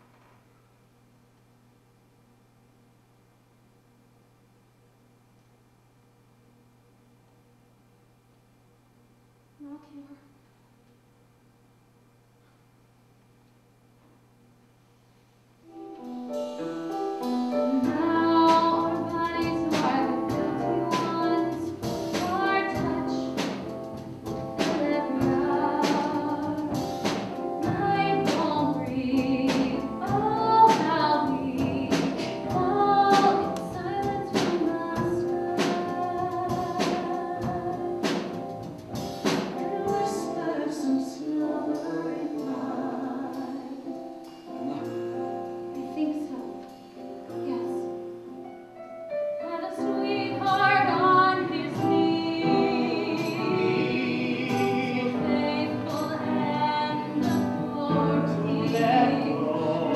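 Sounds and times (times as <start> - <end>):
instrumental accompaniment with beat: 15.7 - 40.5, 50.3 - 59.9
woman singing: 17.6 - 23.6, 24.6 - 26.8, 27.6 - 38.3, 39.6 - 43.9, 45.7 - 46.6, 49.4 - 59.9.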